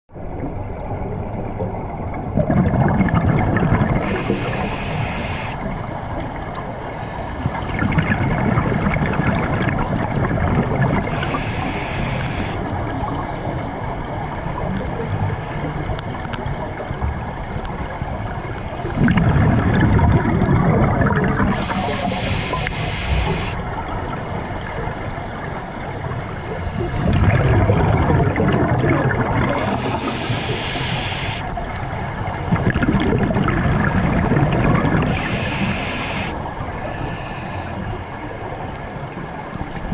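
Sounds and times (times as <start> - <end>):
exhaled bubbles gurgling: 0.2 - 39.9
regulator inhalation hiss: 4.0 - 5.7, 6.8 - 7.8, 11.1 - 12.7, 21.5 - 23.6, 29.5 - 31.5, 35.1 - 38.2.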